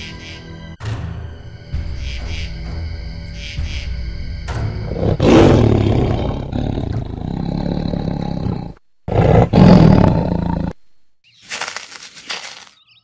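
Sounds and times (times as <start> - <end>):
tiger roaring: 4.9 - 10.8.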